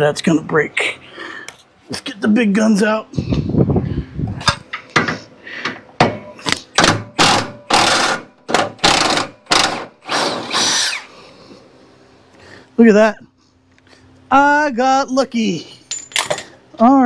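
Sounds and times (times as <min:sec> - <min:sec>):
impact wrench bursts: 0:06.8 - 0:11.1.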